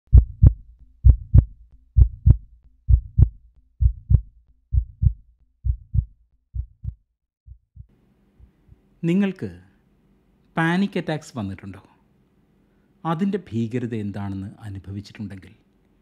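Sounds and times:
heartbeat thumps: 0.1s - 8.6s.

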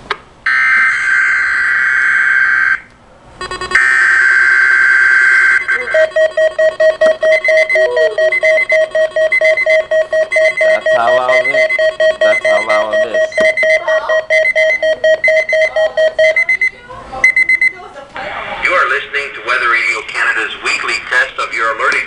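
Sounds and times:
rapid electronic beeping: 3.4s - 16.7s.

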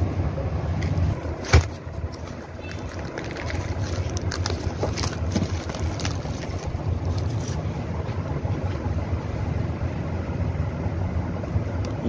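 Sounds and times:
steady low rumble: 0.0s - 12.0s
plastic wrap crinkling and tearing: 1.4s - 7.7s.

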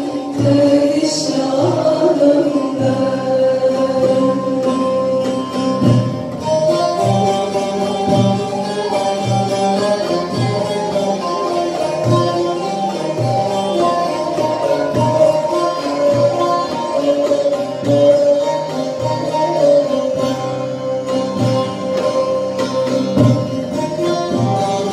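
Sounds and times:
plucked lute: 0.0s - 24.9s
woman singing: 0.3s - 5.2s
frame drum beat: 23.0s - 24.9s.

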